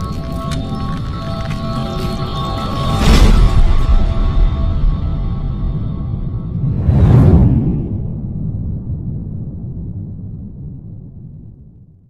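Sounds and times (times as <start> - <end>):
dark cinematic drone music: 0.0 - 7.0.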